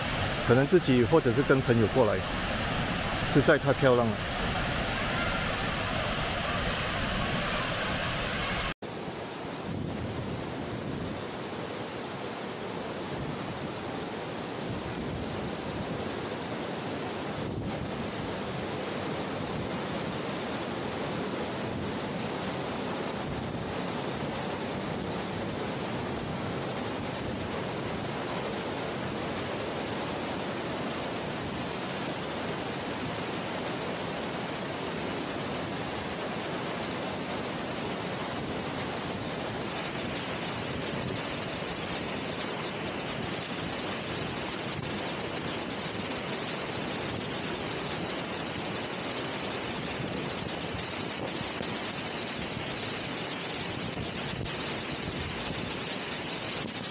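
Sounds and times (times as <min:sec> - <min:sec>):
waterfall rushing: 0:00.0 - 0:08.8.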